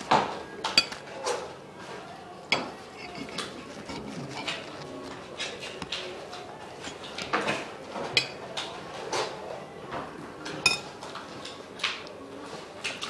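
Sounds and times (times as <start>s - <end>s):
tableware clattering on a table: 0.1s - 1.5s, 2.5s - 4.8s, 6.8s - 9.4s, 10.5s - 11.2s.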